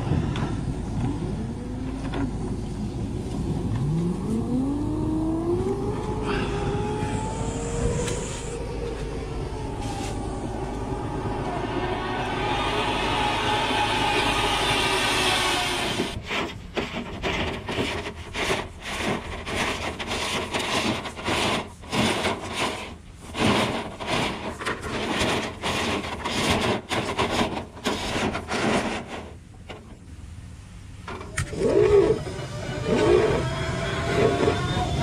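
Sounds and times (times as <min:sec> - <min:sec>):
air rushing from dryer vent: 0:05.4 - 0:30.0
camera rod scraping in duct: 0:14.4 - 0:30.0.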